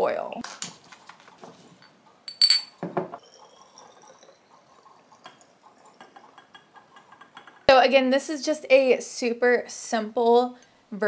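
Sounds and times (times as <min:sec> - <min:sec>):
glass clinking: 0:01.8 - 0:04.4
liquid pouring into bottle: 0:03.2 - 0:06.4.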